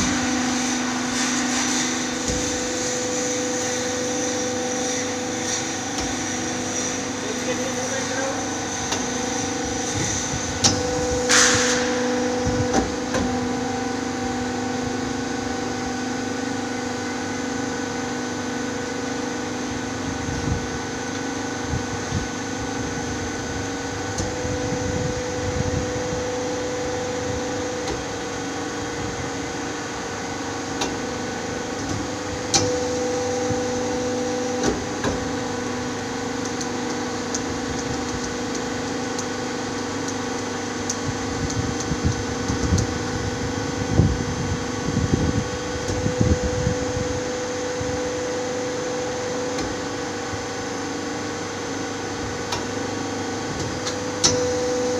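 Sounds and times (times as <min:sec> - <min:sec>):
machine motor humming: 0:00.0 - 0:54.9.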